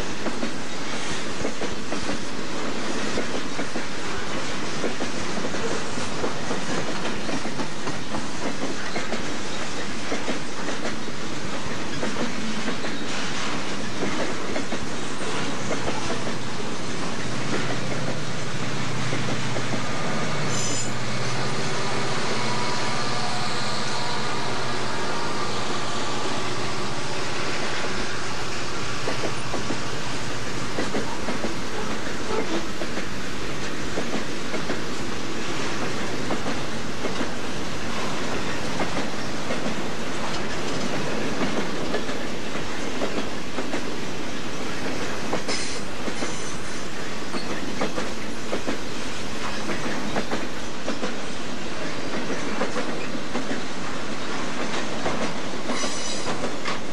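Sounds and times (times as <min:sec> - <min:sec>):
freight train rolling and rattling: 0:00.0 - 0:56.9
locomotive engine: 0:15.9 - 0:30.8
high wheel squeal: 0:20.4 - 0:21.1, 0:55.7 - 0:56.3.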